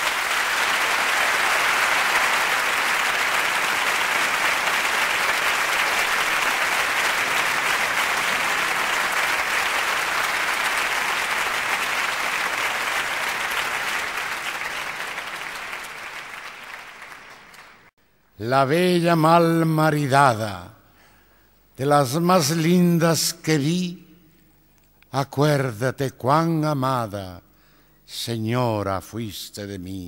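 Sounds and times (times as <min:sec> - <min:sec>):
audience applauding: 0:00.0 - 0:17.9.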